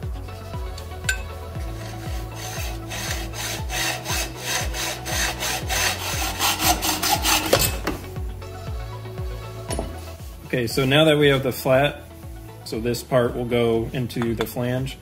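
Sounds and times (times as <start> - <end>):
hacksaw cutting metal pipe: 1.1 - 8.1.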